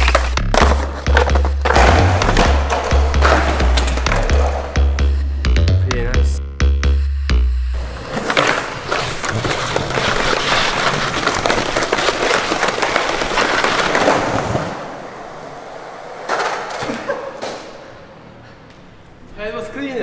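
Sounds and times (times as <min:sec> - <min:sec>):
skateboard rolling on concrete: 0:07.8 - 0:18.0
skateboard clatter: 0:08.0 - 0:17.8.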